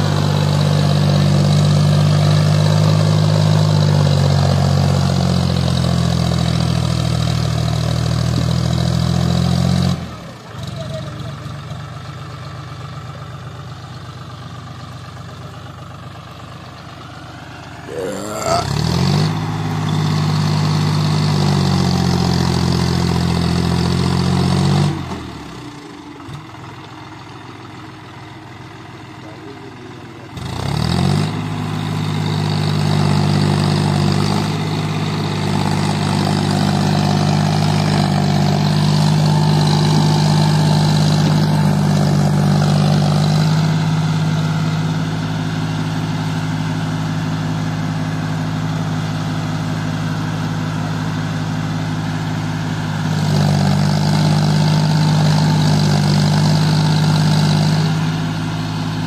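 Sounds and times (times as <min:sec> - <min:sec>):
tractor diesel engine revving: 0:00.0 - 0:59.0.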